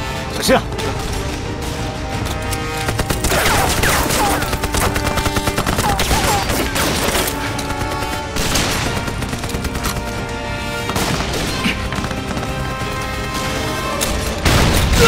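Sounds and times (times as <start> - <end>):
rapid gunfire: 2.6 - 13.7.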